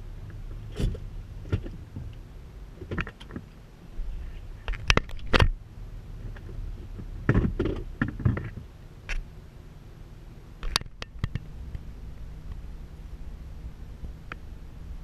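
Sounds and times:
low engine hum: 0:00.0 - 0:15.0
knocks and clunks: 0:00.3 - 0:02.2, 0:02.8 - 0:03.5, 0:04.6 - 0:05.6, 0:06.3 - 0:09.2.

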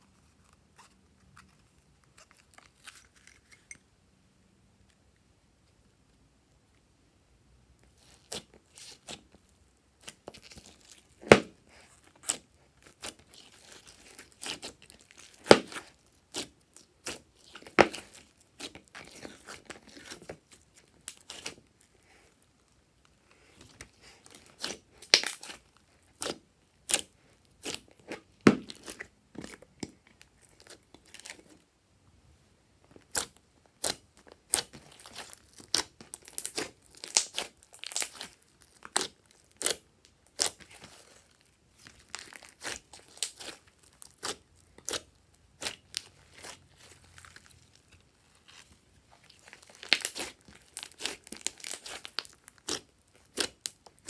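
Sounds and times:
slime popping and crackling: 0:10.0 - 0:21.9, 0:23.7 - 0:31.5, 0:33.0 - 0:54.0.

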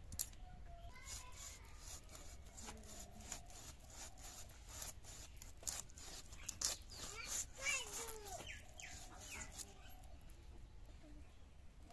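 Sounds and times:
knife scraping fish scales: 0:01.0 - 0:10.1.

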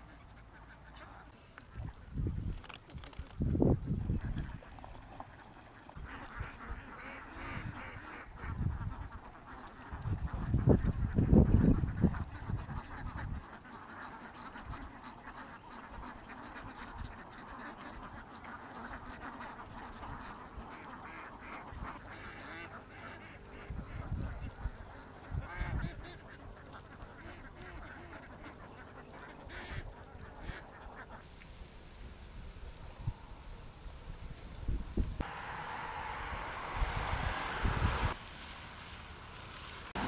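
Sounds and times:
ducks quacking: 0:00.0 - 0:01.9, 0:04.1 - 0:31.2.

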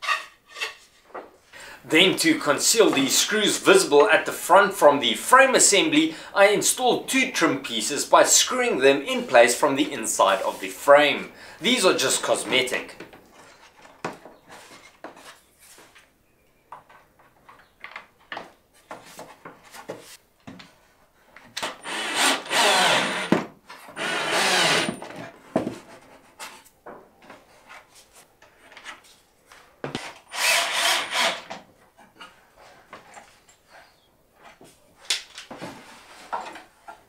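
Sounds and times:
cordless drill driving screws: 0:21.6 - 0:23.4, 0:24.0 - 0:25.0, 0:30.3 - 0:31.5.

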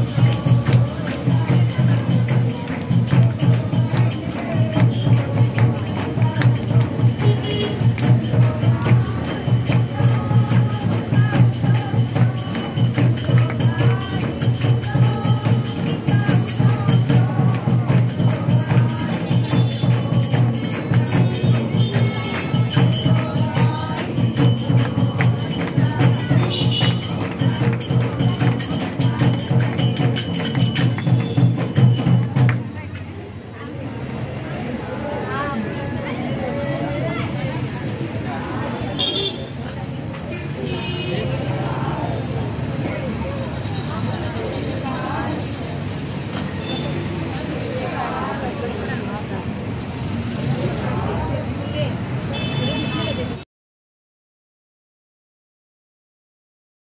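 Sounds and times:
voices singing together: 0:00.0 - 0:32.3, 0:40.6 - 0:49.2
drum beat: 0:00.0 - 0:32.7
jingling hand percussion: 0:00.0 - 0:33.0, 0:36.8 - 0:51.8.

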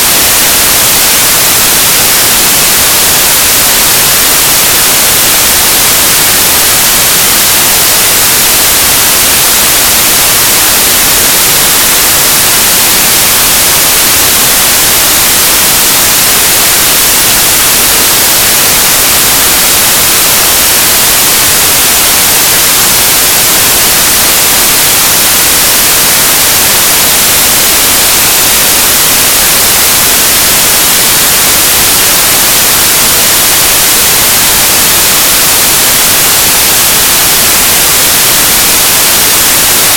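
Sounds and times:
electronic static hiss: 0:00.0 - 0:39.9.

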